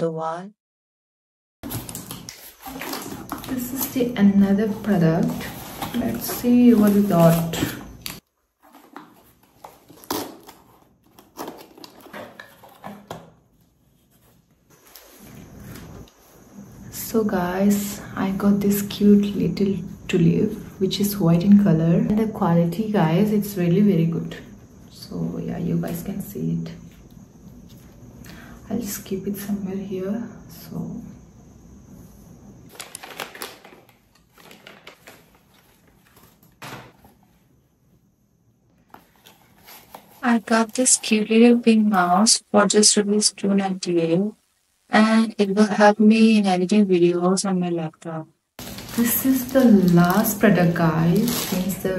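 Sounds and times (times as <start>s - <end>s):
packaging rustling: 1.6s - 16.0s, 32.7s - 37.4s, 38.8s - 41.2s, 48.6s - 51.9s.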